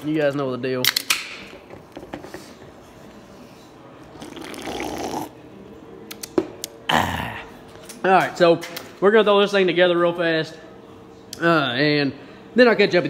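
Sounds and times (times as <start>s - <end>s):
person gulping liquid: 4.1s - 5.4s.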